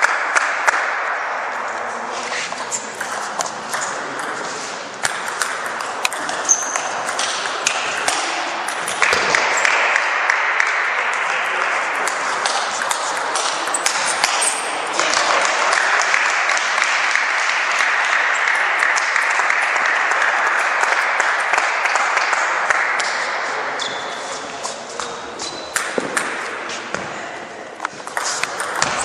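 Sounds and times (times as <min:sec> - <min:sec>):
spectators clapping: 0:09.0 - 0:23.3.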